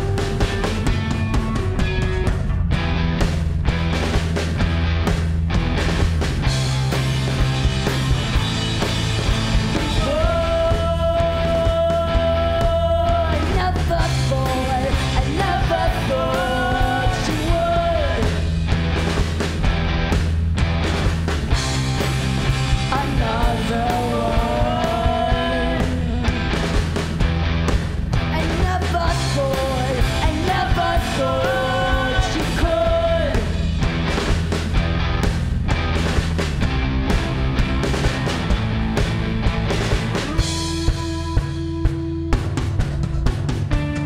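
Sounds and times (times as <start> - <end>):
drum kit: 0.0 - 44.0
electric guitars: 0.0 - 44.0
rock band playing live: 0.0 - 44.0
person singing: 9.7 - 18.4, 22.9 - 26.4, 28.3 - 33.6.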